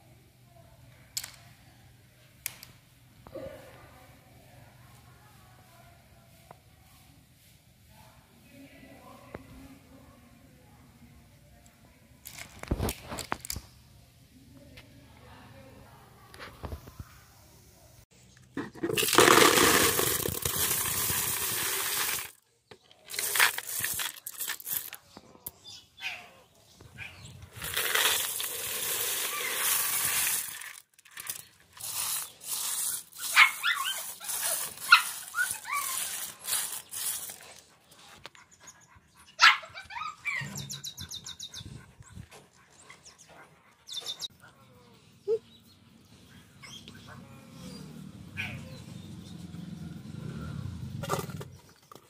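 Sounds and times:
shells clattering into plastic tub: 0:18.6 - 0:25.0, 0:27.6 - 0:33.4, 0:34.0 - 0:37.4
dog yelping and whimpering: 0:39.4 - 0:40.9.

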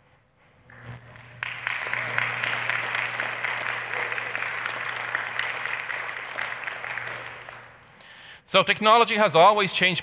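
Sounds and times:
audience applause: 0:01.0 - 0:08.0.

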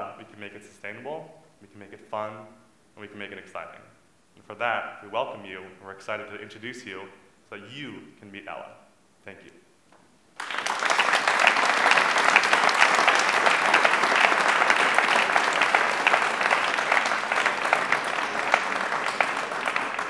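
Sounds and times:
audience applauding: 0:10.4 - 0:20.0.

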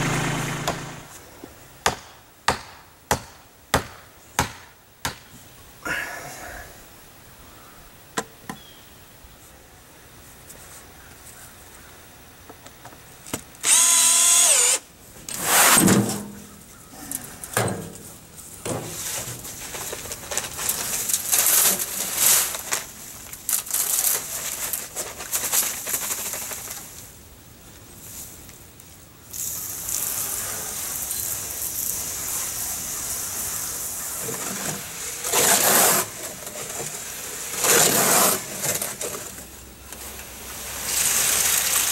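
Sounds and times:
dry concrete mix pouring and scraping: 0:18.7 - 0:27.0, 0:29.3 - 0:41.9.

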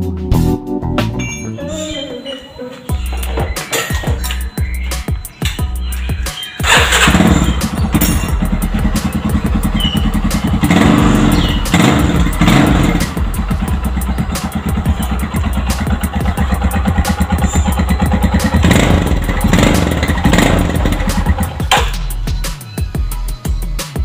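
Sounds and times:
motorcycle engine revving and idling: 0:06.1 - 0:22.5.

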